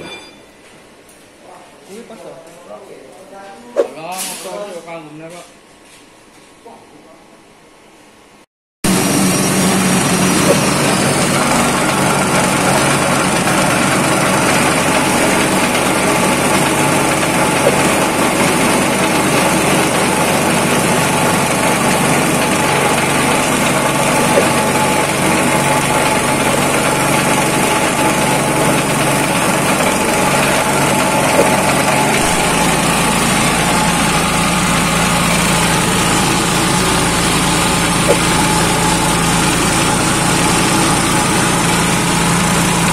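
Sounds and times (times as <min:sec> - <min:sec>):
foam shredder running: 0:08.9 - 0:42.9.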